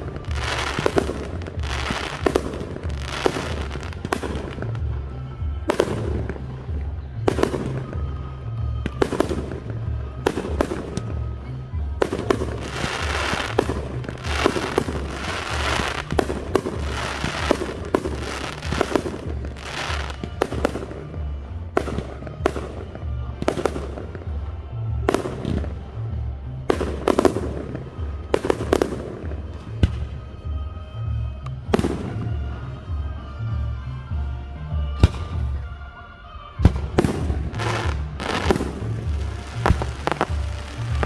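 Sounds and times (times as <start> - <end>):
firework crackling: 0.0 - 26.0, 36.6 - 41.0
music with bass line: 0.0 - 36.0, 36.6 - 41.0.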